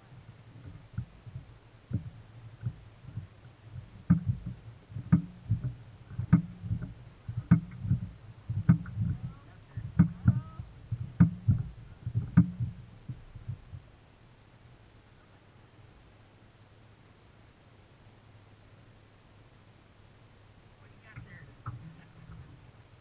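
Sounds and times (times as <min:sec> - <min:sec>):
waves slapping boat hull: 0:00.0 - 0:13.9.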